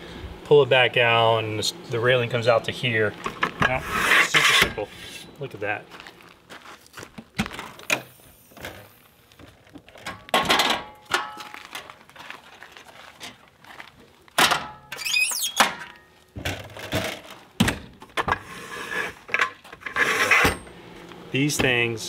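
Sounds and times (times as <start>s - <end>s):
high metallic squeak: 14.9s - 15.7s.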